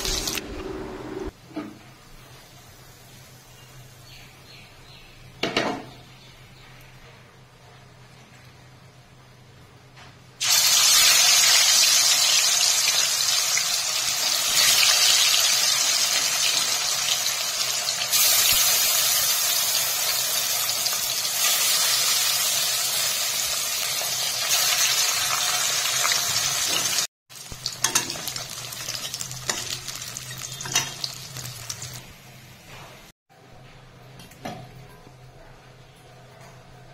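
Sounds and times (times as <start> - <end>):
fish sizzling in hot oil: 10.4 - 32.0.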